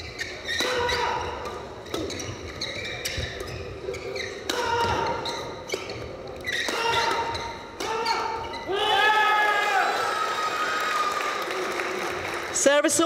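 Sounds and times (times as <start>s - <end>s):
shoes squeaking on floor: 0.0s - 9.2s
racket hitting shuttlecock: 0.2s - 8.5s.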